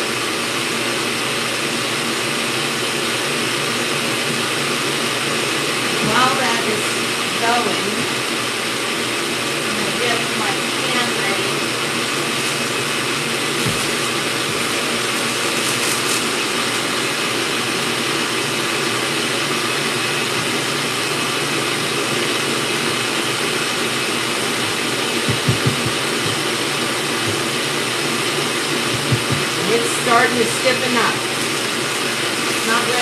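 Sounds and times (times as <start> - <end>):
stand mixer running: 0.0 - 33.0
quick knocks: 25.3 - 26.4, 28.9 - 29.6.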